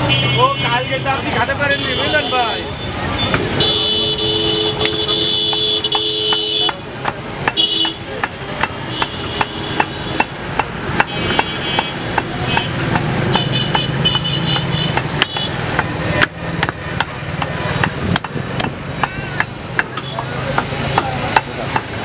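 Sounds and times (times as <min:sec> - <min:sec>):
cleaver chopping meat and bone: 0:04.7 - 0:22.0.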